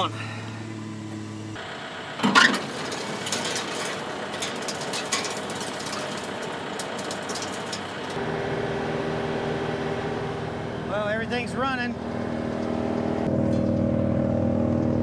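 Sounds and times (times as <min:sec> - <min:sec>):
diesel engine running: 0:00.0 - 0:15.0
wood chipper running empty: 0:01.6 - 0:11.5
clicks and rattles: 0:02.2 - 0:08.2.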